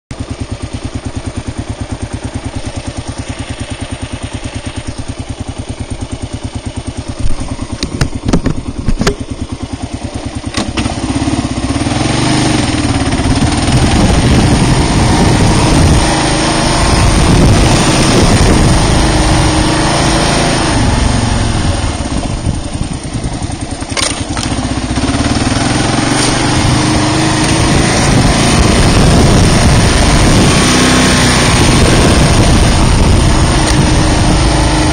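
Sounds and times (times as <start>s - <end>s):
motorcycle engine idling: 0.1s - 34.9s
motorcycle revving and shifting: 0.1s - 34.9s
sharp knocks: 7.2s - 9.4s.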